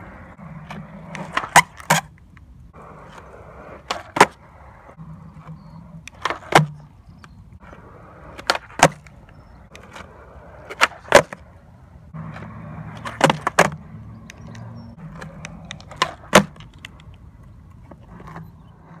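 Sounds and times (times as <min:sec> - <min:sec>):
skateboard popping and landing: 0:00.0 - 0:19.0
skateboard wheels rolling on concrete: 0:00.0 - 0:19.0.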